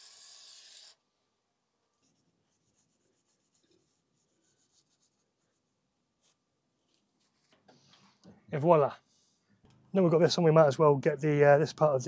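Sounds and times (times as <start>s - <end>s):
gloved hands rubbing: 2.0s - 7.6s.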